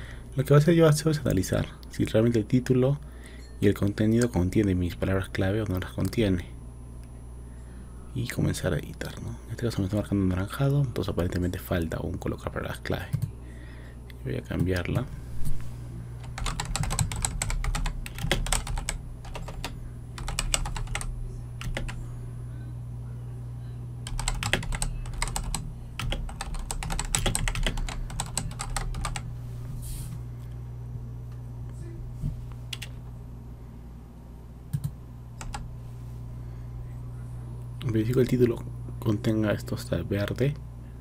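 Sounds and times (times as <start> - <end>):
steady low hum: 0.0 - 41.0
typing on computer keyboard: 16.2 - 22.0, 24.1 - 29.2, 34.7 - 35.6.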